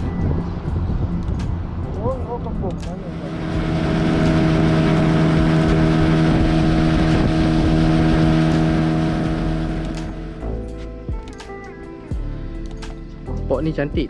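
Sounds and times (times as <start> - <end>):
wind: 0.0 - 14.0
outboard motor running: 1.6 - 10.6.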